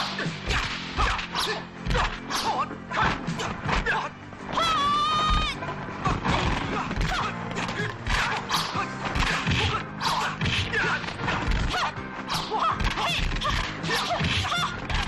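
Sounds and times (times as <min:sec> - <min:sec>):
fight scene music: 0:00.0 - 0:15.0
punch and kick impacts: 0:01.8 - 0:02.2, 0:09.1 - 0:11.8.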